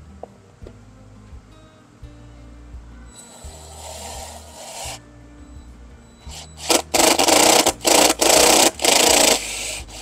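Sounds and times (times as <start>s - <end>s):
power drill boring through wall: 6.3s - 10.0s.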